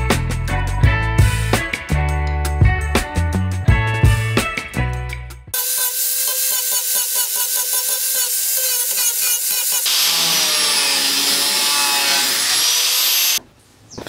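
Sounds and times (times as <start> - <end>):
angle grinder grinding metal: 5.6 - 13.4.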